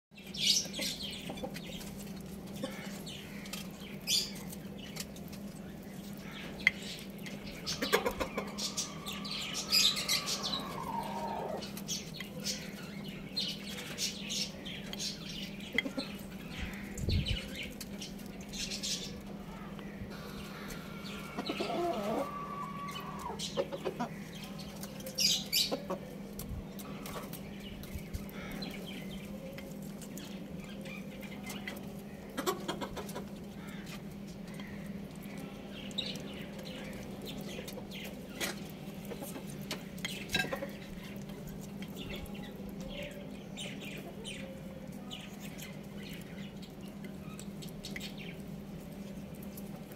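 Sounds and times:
chickens clucking: 0.3 - 49.9
drawn-out chicken calls: 6.0 - 12.2, 18.8 - 27.5, 31.4 - 35.6.

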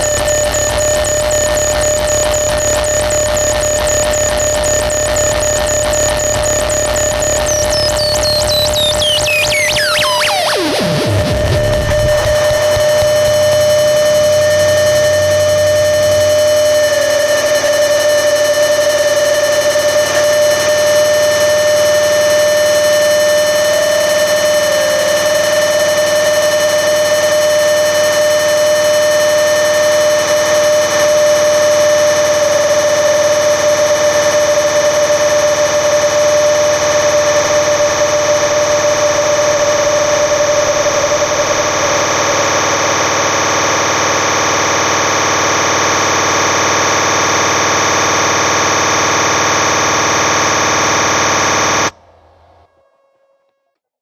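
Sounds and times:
sustained electronic tones: 0.0 - 19.5
electronic noise drone: 0.0 - 52.0.

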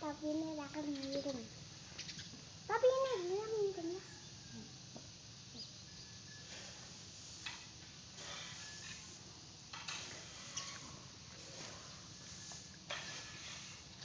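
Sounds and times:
rake swishing through rice: 6.4 - 14.0.

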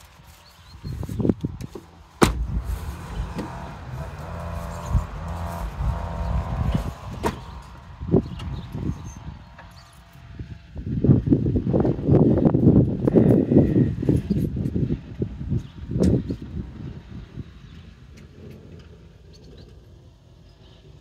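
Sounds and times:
handling noise rumble: 2.1 - 10.7
car door shutting thud: 2.2 - 3.7, 7.1 - 7.5.

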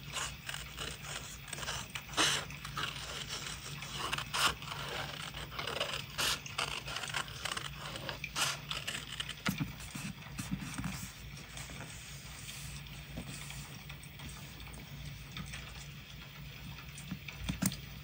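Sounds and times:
scissors snipping paper: 0.0 - 10.9
hands rubbing paper: 0.0 - 14.5
paper rustling: 0.0 - 14.6.

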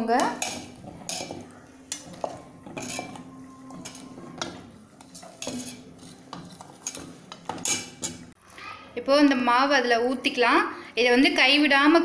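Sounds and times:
metal bowl ringing: 0.0 - 8.3
spoon scraping and clinking bowl: 0.2 - 8.4.

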